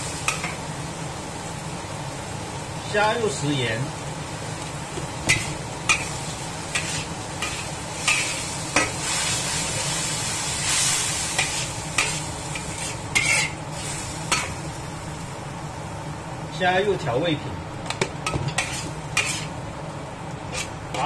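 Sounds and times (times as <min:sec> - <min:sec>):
food sizzling: 0:00.0 - 0:21.0
metal spatula scraping a wok: 0:05.3 - 0:14.5, 0:18.5 - 0:19.6, 0:20.5 - 0:21.0.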